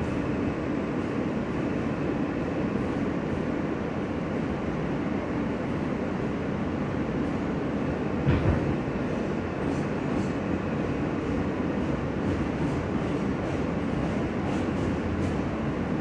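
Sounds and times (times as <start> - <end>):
subway wheels rumbling on rail: 0.0 - 16.0.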